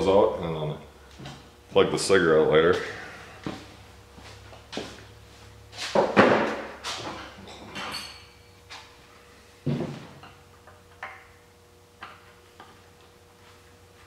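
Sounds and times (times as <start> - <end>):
metallic ring: 7.5 - 8.6.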